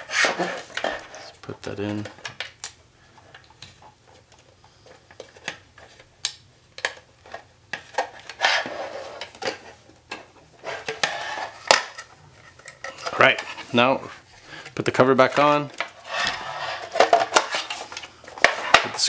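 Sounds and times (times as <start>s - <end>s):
short scrapes: 16.0s - 17.8s.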